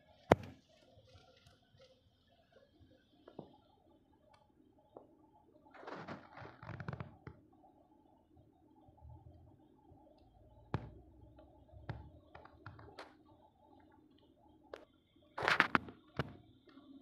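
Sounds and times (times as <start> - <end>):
faint clicks and taps: 0.1 - 7.7, 10.1 - 17.0.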